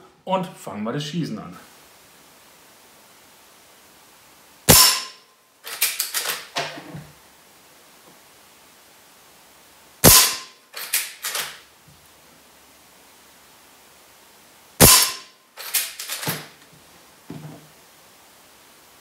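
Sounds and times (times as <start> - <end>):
rifle shot crack: 4.7 - 5.2, 10.0 - 11.6, 14.8 - 16.5.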